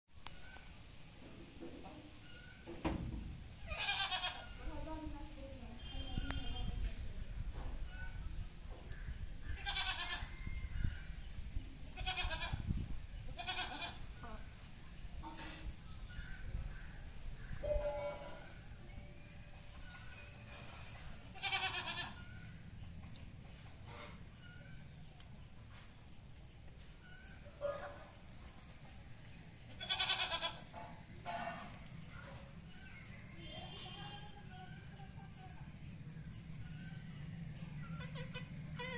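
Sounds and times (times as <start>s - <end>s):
farm animal calling: 3.6s - 4.6s, 9.4s - 10.7s, 13.2s - 14.4s, 19.8s - 22.6s, 29.7s - 31.6s, 36.4s - 38.9s.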